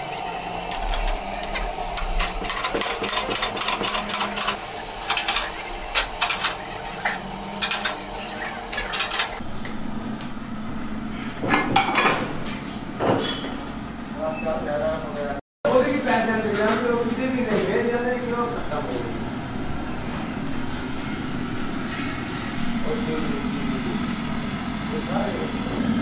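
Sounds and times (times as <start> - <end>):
metal screw clamps clicking: 0.7 - 9.4.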